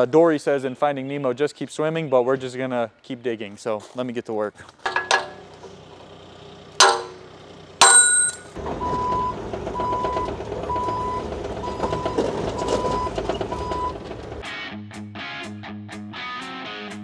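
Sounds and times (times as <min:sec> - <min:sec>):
diesel engine running: 0:04.9 - 0:14.5
hammer ringing on steel: 0:06.8 - 0:08.6.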